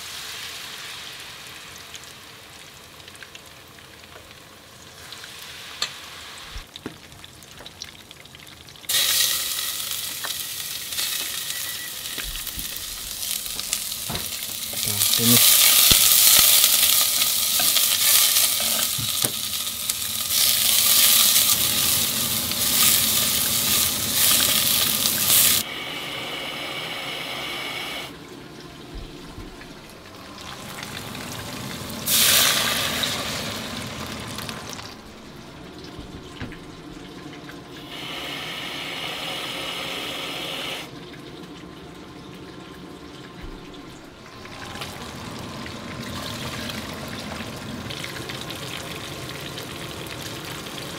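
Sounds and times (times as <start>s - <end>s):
food sizzling while stirred: 4.9s - 6.7s, 8.9s - 25.6s, 30.5s - 34.4s.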